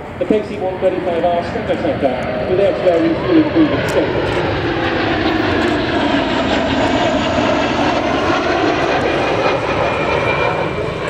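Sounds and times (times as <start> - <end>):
jet engines flyby: 0.0 - 11.0.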